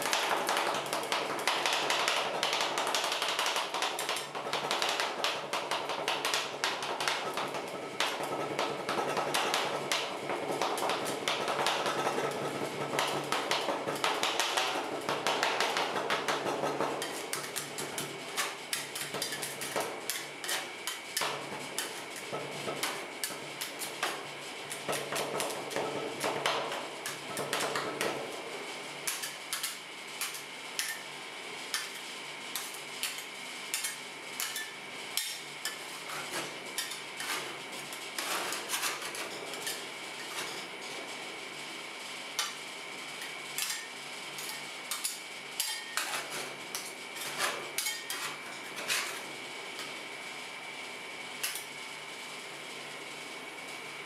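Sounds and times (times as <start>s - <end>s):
spatulas scraping: 10.5s - 28.3s, 31.7s - 41.1s, 43.2s - 49.9s.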